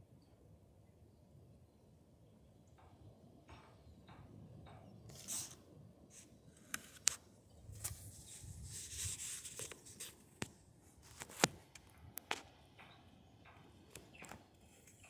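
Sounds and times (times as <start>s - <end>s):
hissing rustle: 5.1s - 11.9s.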